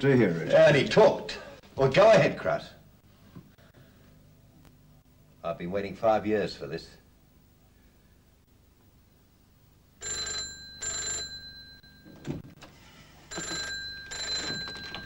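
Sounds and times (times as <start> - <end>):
telephone bell ringing: 10.0 - 12.3, 13.2 - 15.0.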